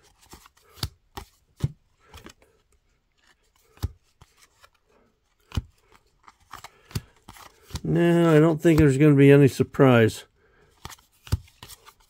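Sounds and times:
cards snapping and sliding: 0.0 - 2.6, 3.2 - 8.9, 10.7 - 12.0.

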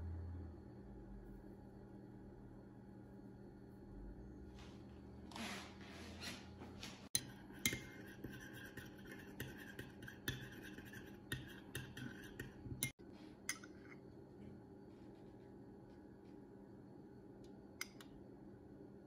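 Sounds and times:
spoon clinking against bowl: 7.2 - 14.0
spoon scraping ceramic bowl: 7.2 - 14.0.

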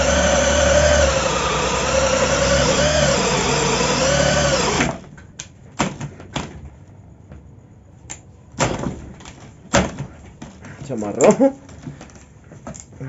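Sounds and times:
power drill boring wood: 0.0 - 5.0.

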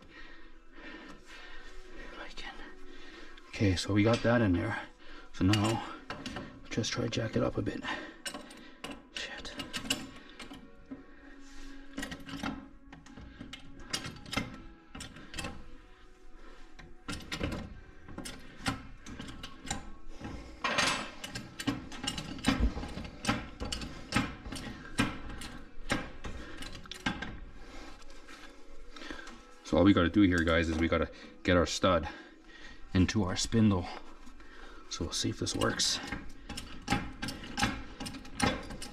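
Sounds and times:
floor jack metallic clicks and clanks: 17.1 - 27.4, 35.4 - 38.9.

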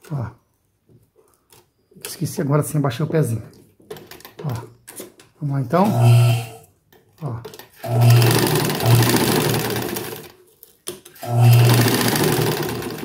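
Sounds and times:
sewing machine running fast: 7.8 - 10.3, 11.2 - 13.0.

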